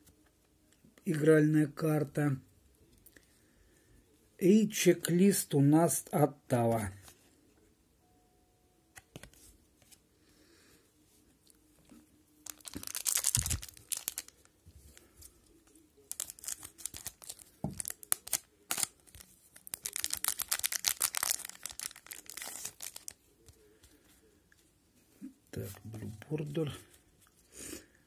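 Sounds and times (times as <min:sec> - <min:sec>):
wrapper torn and crinkled: 0:12.4 - 0:14.5, 0:16.0 - 0:23.2.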